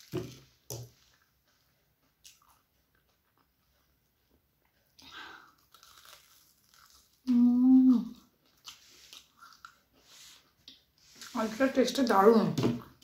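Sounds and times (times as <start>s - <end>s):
chewing crunchy food: 0.0s - 7.4s, 8.0s - 11.4s
person humming mmm: 7.2s - 8.2s.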